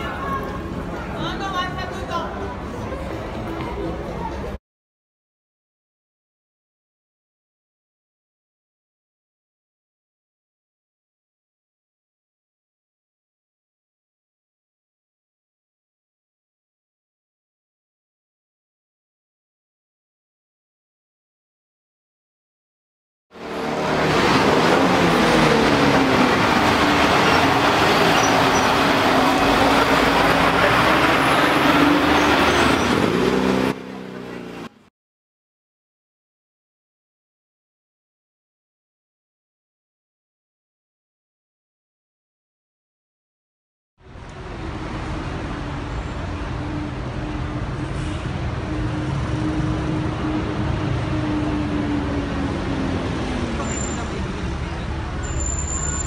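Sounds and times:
bus and car engines passing: 0:00.0 - 0:04.6, 0:23.4 - 0:34.9, 0:44.0 - 0:56.0
road noise: 0:00.0 - 0:04.6, 0:23.3 - 0:34.9, 0:44.0 - 0:56.0.

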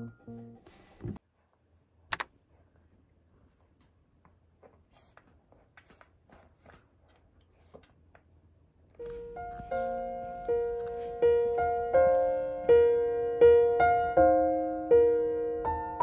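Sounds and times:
clothing and bag rustling: 0:09.0 - 0:12.7.

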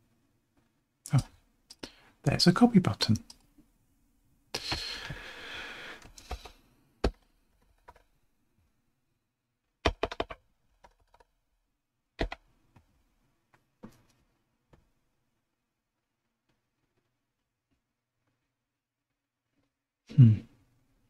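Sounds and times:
keyboard keystrokes: 0:09.8 - 0:11.2, 0:12.2 - 0:12.4.

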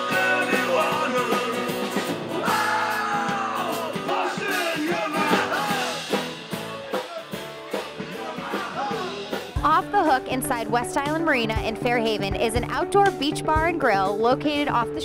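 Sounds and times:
man singing: 0:00.0 - 0:06.1, 0:08.0 - 0:09.5
acoustic guitar: 0:00.0 - 0:15.0
bass guitar: 0:00.0 - 0:15.0
drums: 0:00.0 - 0:15.0.

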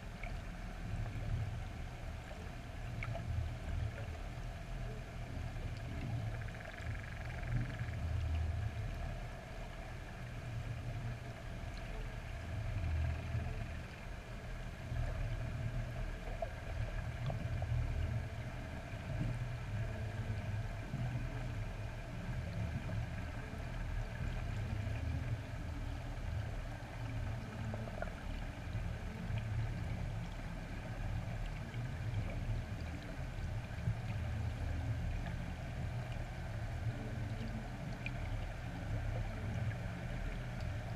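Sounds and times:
faint steady hum: 0:00.0 - 0:40.9
underwater low rumble: 0:00.0 - 0:40.9.

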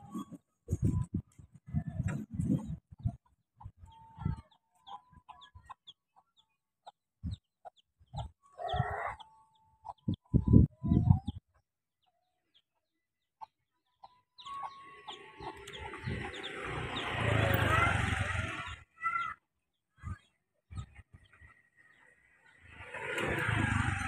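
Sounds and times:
chickens clucking: 0:00.0 - 0:11.4, 0:13.4 - 0:18.8
motorcycle engine approaching: 0:14.5 - 0:19.3, 0:20.8 - 0:24.0.

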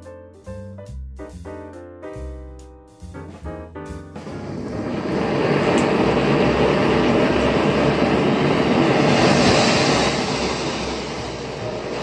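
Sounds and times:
gas stove burner hissing: 0:04.2 - 0:12.0.

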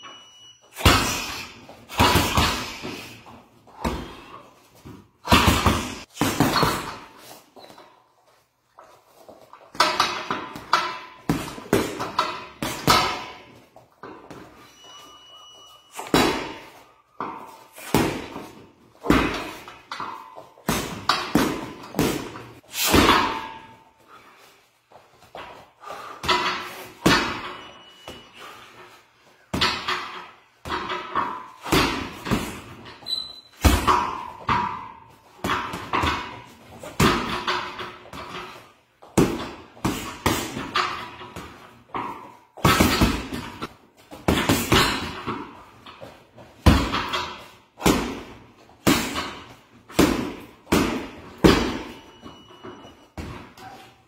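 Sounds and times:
punches and kicks smacking: 0:47.8 - 0:51.9.

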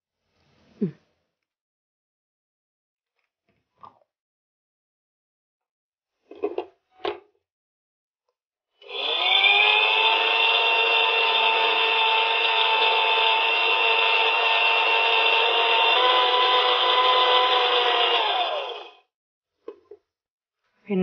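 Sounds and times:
mixer grinder motor whining: 0:08.8 - 0:19.1.

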